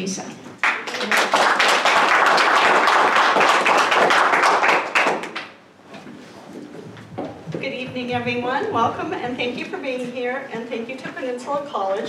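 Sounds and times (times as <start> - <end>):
audience applauding: 0.6 - 5.6.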